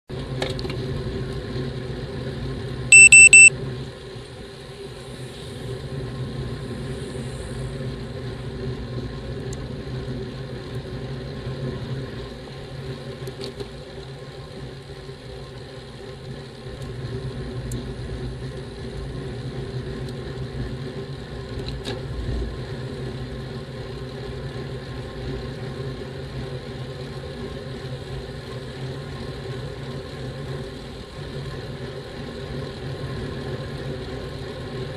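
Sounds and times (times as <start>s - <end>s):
short high electronic beeps: 2.9s - 3.5s
bicycle road riding hum: 5.0s - 34.9s.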